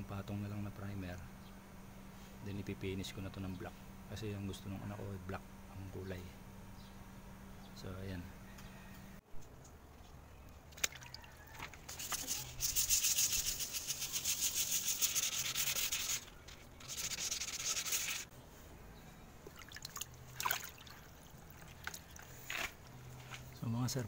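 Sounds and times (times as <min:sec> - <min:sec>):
sanding sponge rubbing metal panel: 0:11.9 - 0:18.3.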